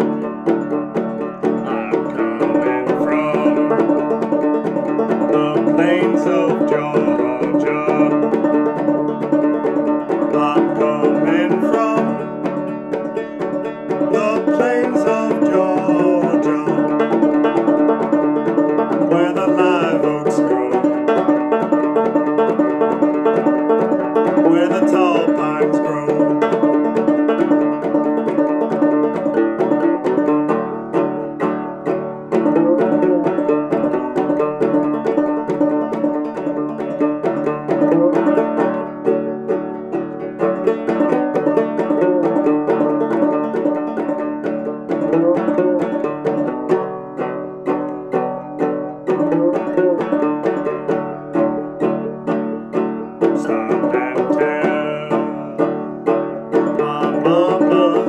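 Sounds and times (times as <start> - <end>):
fretless banjo tune: 0.0 - 58.0.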